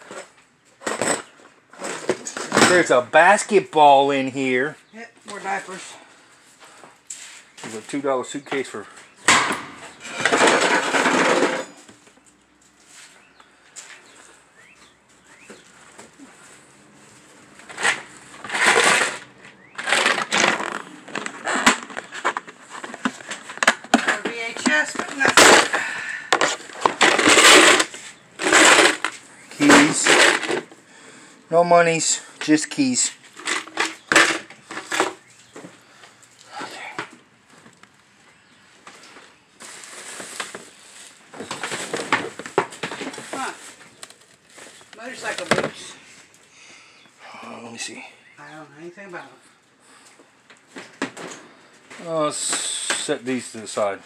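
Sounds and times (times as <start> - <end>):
rustling in plastic tote: 15.2 - 25.8, 39.0 - 45.9.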